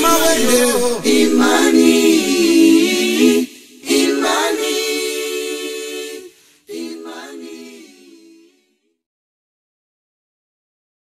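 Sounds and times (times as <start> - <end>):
choir singing unaccompanied: 0.0 - 8.8.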